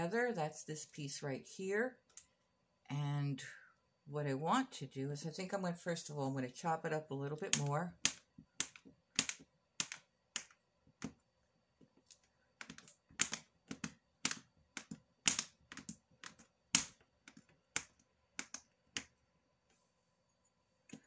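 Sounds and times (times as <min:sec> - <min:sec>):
blade chopping clay: 0:07.4 - 0:11.2, 0:12.6 - 0:19.1.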